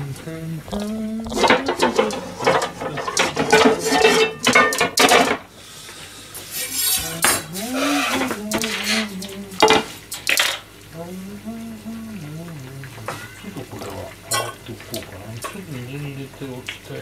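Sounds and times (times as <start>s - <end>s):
person humming a tune: 0.0s - 4.0s, 6.6s - 9.8s, 11.0s - 13.6s
pots and utensils clattering: 0.7s - 5.5s, 6.4s - 10.7s, 12.8s - 15.8s.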